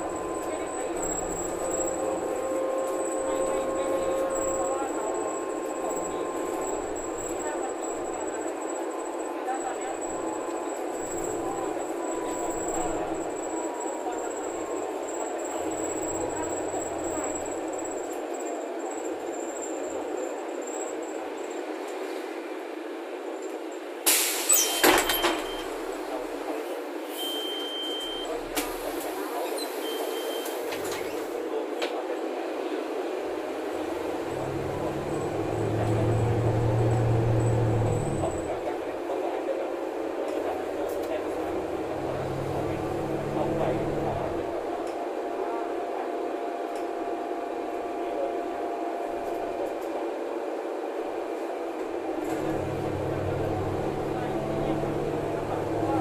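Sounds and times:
bus engine and road noise: 0.0 - 56.0
steady cabin noise: 33.5 - 38.6, 40.8 - 44.7, 52.1 - 56.0.

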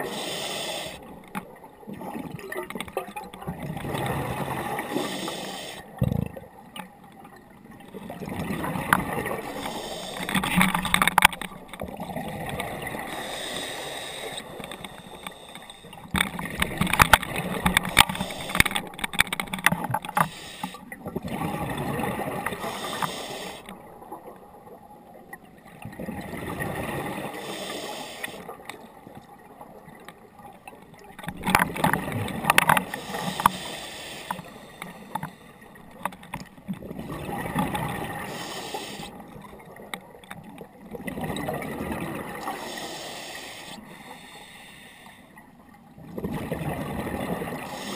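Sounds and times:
diver breathing through regulator: 0.0 - 1.1, 4.8 - 5.9, 9.2 - 11.1, 12.8 - 16.2, 17.5 - 19.2, 20.0 - 20.9, 22.4 - 23.7, 27.2 - 28.5, 32.8 - 35.8, 38.0 - 39.2, 42.4 - 45.4, 47.6 - 47.9
bubbles gurgling underwater: 1.4 - 5.0, 6.0 - 9.6, 10.3 - 13.3, 20.9 - 22.7, 23.8 - 27.4, 28.5 - 33.0, 35.8 - 38.3, 39.2 - 42.5, 45.9 - 47.8.

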